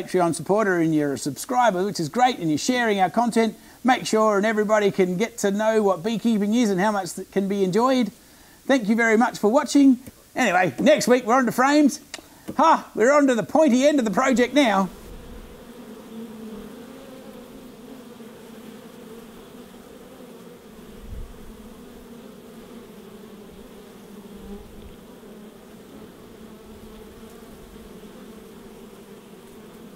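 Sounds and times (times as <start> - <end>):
bees buzzing: 0.0 - 29.9.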